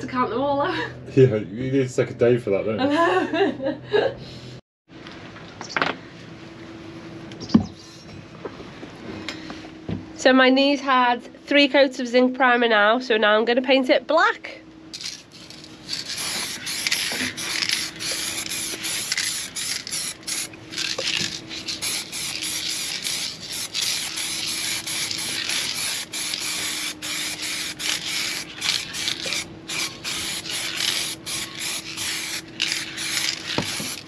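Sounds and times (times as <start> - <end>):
spray can hissing: 15.0 - 34.0.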